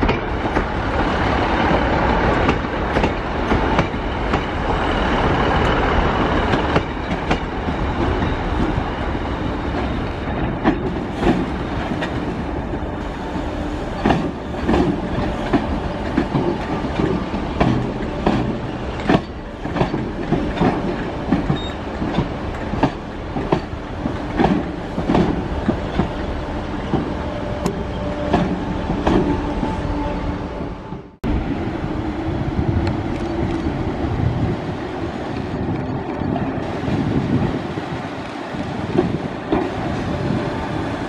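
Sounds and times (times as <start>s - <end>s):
slow train rumble with hum: 0.0s - 41.0s
train wheels clacking over joints: 6.4s - 8.8s, 9.7s - 12.9s, 13.9s - 29.7s.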